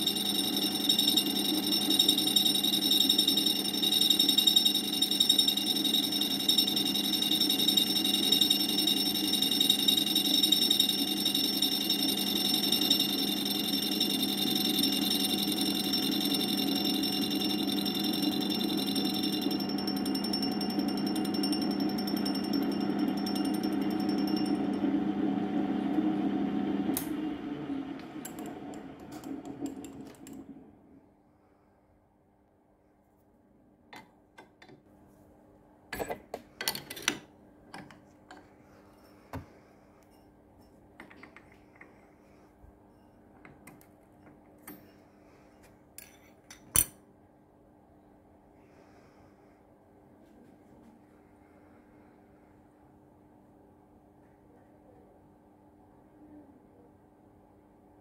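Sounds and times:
grinding machine whining: 0.0s - 30.2s.

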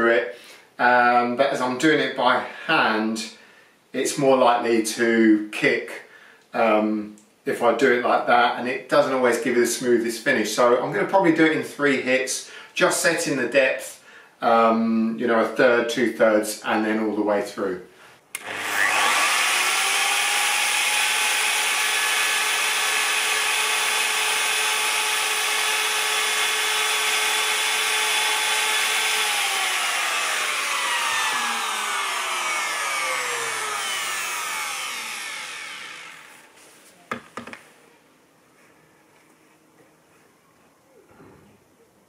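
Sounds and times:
router motor winding down: 18.4s - 36.6s
plunge router whining: 18.4s - 37.6s.

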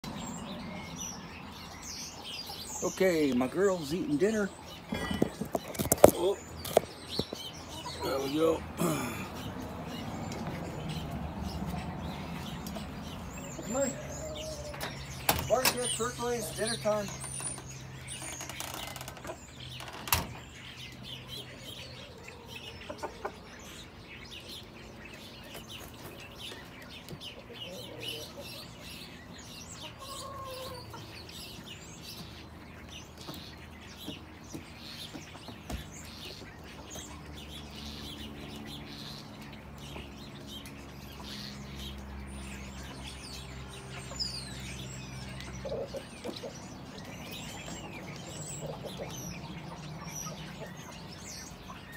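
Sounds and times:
small birds chirping: 0.0s - 51.9s
chickens pecking on a plate: 3.4s - 20.0s
chickens clucking softly: 4.7s - 10.6s, 21.2s - 24.0s, 29.8s - 31.5s, 45.3s - 51.9s.

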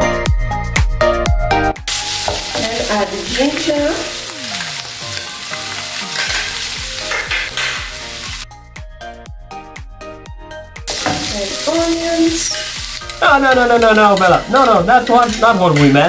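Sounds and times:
background music: 0.0s - 16.0s
meat sizzling in a frying pan: 1.9s - 8.4s, 10.9s - 16.0s.

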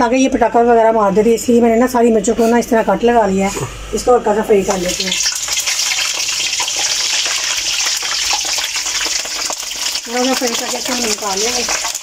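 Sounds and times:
chillies sizzling in hot oil: 4.6s - 12.0s.

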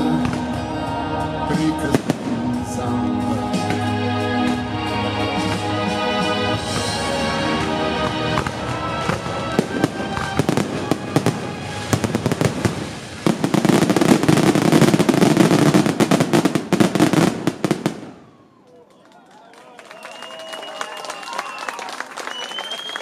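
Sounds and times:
music: 0.0s - 14.5s
fireworks crackling: 1.5s - 18.4s
firework bangs: 6.6s - 18.4s.

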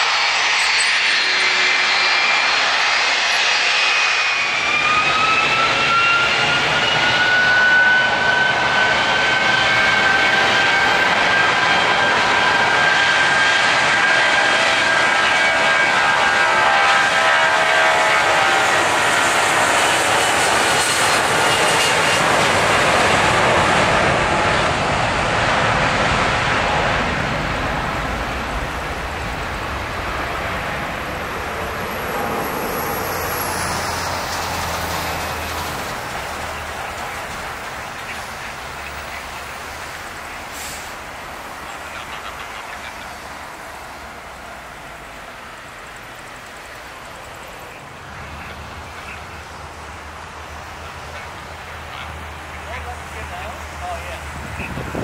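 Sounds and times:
jet engines at takeoff power: 0.0s - 55.0s.

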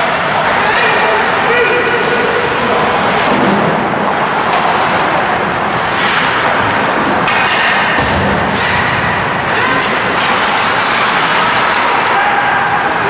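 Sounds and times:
ice rink crowd din: 0.0s - 13.0s
sticks and puck knocking boards: 5.8s - 12.2s.

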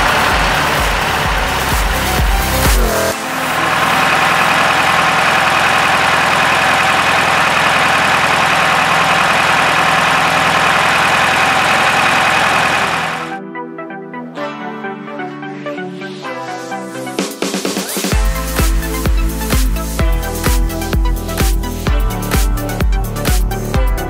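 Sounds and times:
car engine idling: 0.0s - 13.4s.

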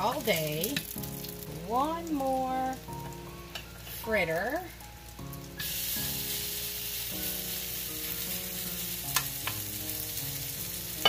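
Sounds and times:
batter sizzling in hot oil: 0.0s - 11.0s.

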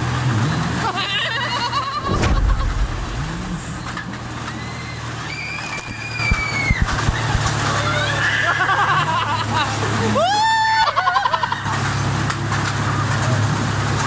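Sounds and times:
low machine hum: 0.8s - 11.4s
heavy thump with rumble: 2.0s - 4.7s.

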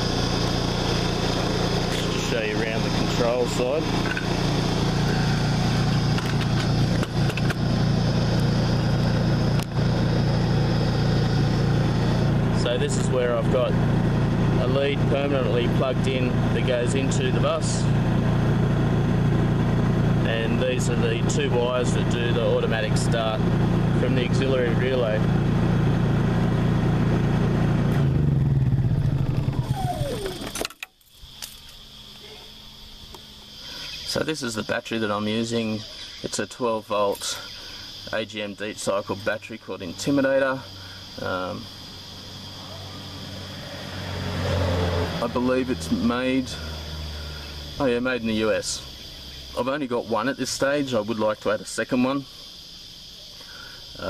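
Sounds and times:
generator running: 0.0s - 36.3s, 37.4s - 50.8s.

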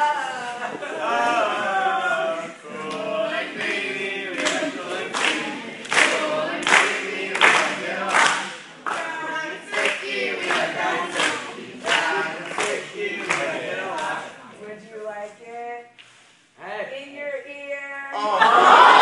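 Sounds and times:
group singing: 0.0s - 14.6s
hand claps: 3.6s - 14.2s.

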